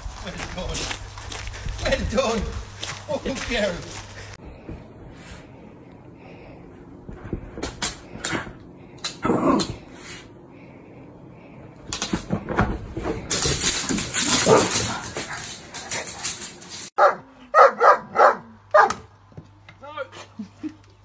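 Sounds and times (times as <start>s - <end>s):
dog barking loudly: 14.4s - 14.8s, 17.0s - 19.1s.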